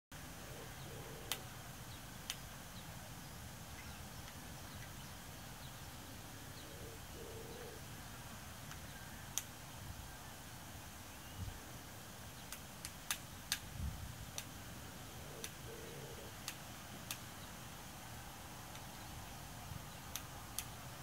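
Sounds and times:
low bird calls: 0:00.4 - 0:02.1, 0:02.7 - 0:08.0, 0:15.0 - 0:16.4
sharp clicks: 0:12.5 - 0:13.7, 0:15.4 - 0:15.7, 0:16.3 - 0:17.3, 0:18.7 - 0:19.0, 0:20.0 - 0:20.9.

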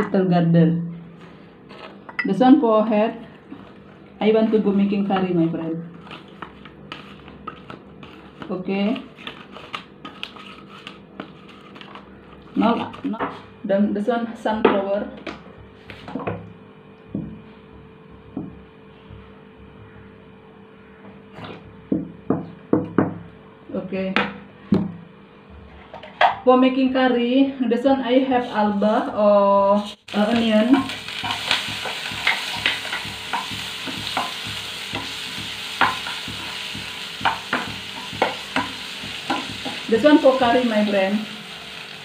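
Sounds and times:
low electrical hum: 0:00.0 - 0:42.0
spoon scraping a pan: 0:06.0 - 0:12.0, 0:28.3 - 0:40.4
onion sizzling in a pan: 0:29.7 - 0:42.0
spoon knocking against a pan: 0:31.3 - 0:39.8.

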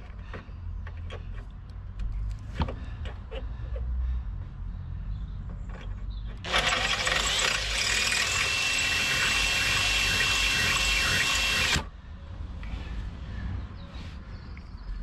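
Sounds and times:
cordless drill whining: 0:06.4 - 0:11.9.

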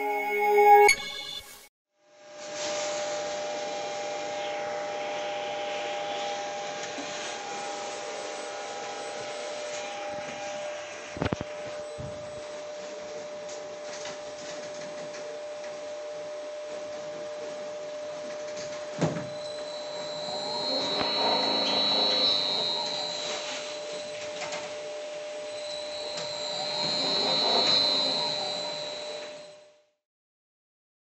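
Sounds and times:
electrical whine: 0:02.4 - 0:29.8.

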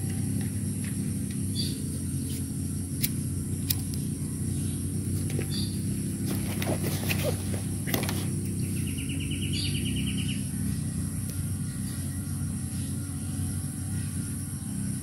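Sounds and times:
high insect drone: 0:00.0 - 0:15.0
bird trilling: 0:04.4 - 0:06.0, 0:06.6 - 0:10.7.

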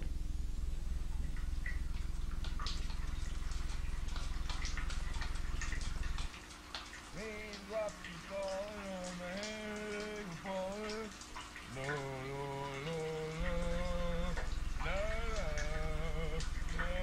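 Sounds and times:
low electrical hum: 0:00.0 - 0:17.0
person singing a tune: 0:07.2 - 0:11.1, 0:11.7 - 0:17.0.

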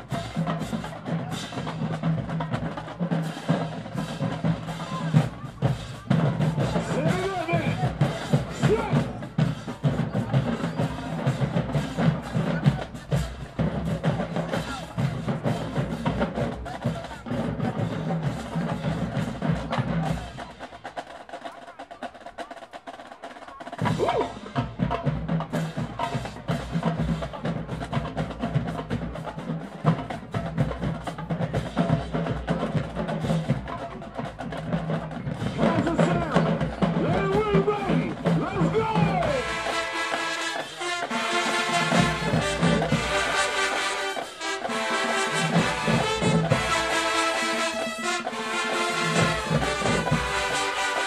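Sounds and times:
snare drums: 0:00.0 - 0:51.0.

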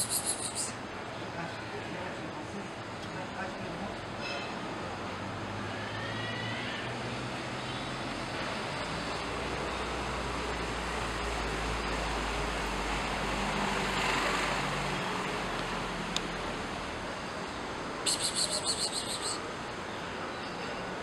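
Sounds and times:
city street traffic: 0:00.0 - 0:21.0.

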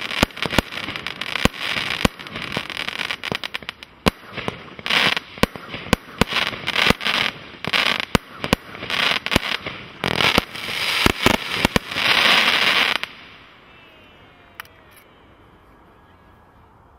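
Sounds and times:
firework crackling: 0:00.0 - 0:15.4
firework shots banging: 0:03.4 - 0:13.2.

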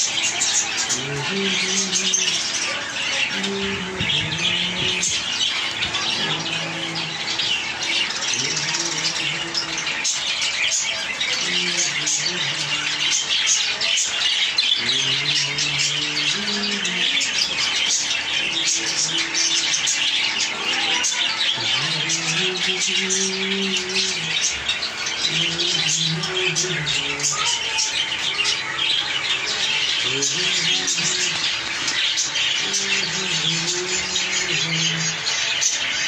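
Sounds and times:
caged birds chattering and squawking: 0:00.0 - 0:36.0
low pitched drones: 0:00.0 - 0:36.0.

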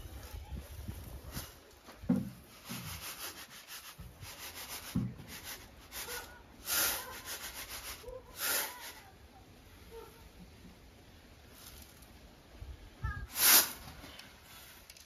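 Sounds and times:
dried beans raked on metal tray: 0:02.5 - 0:09.0, 0:13.3 - 0:15.0.

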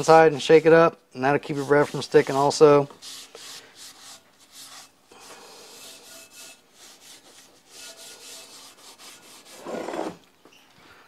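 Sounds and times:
paper towel scrubbing a pan: 0:01.4 - 0:09.7.

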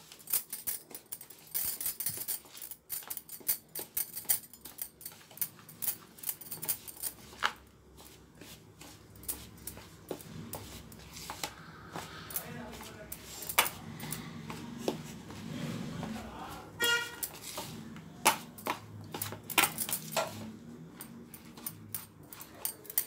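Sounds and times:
spoon scraping bowl: 0:08.4 - 0:16.2, 0:16.8 - 0:22.8.

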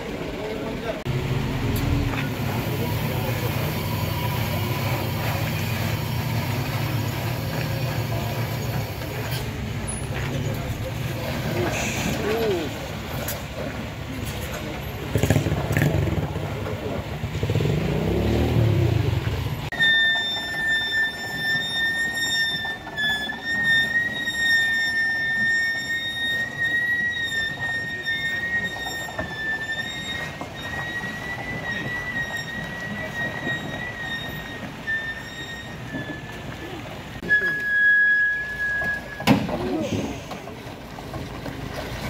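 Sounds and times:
vehicle engine rumble: 0:00.0 - 0:42.0.

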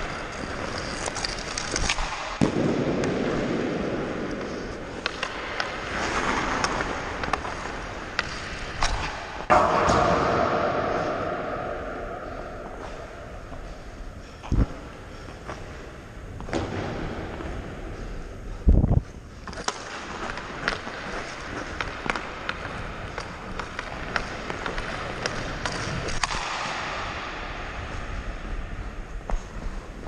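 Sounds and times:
skates scraping on ice: 0:00.0 - 0:10.2, 0:19.0 - 0:30.0.

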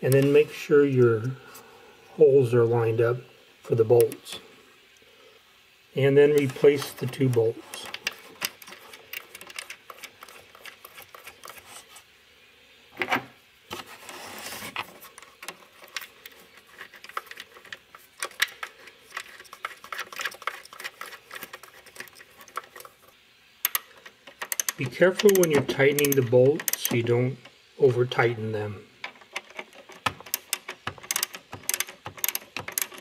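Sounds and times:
metallic clicks and scrapes: 0:06.2 - 0:12.1, 0:13.0 - 0:28.2, 0:29.0 - 0:33.0.

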